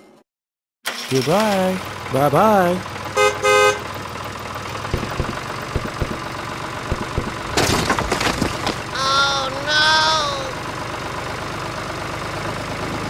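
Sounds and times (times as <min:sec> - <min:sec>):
toy tractor motor hum: 0:04.5 - 0:07.6
packets spilling with a clatter: 0:07.5 - 0:08.9
squeaky cartoon voice: 0:08.9 - 0:10.6.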